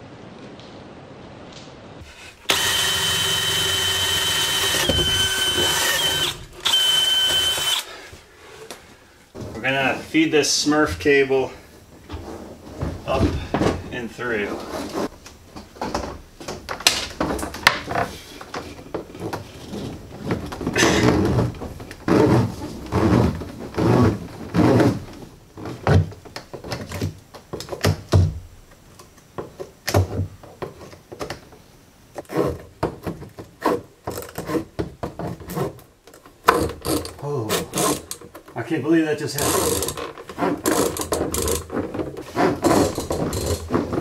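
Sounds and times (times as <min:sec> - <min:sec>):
plastic conduit scraping against wood: 0:17.3 - 0:26.0, 0:39.3 - 0:44.0.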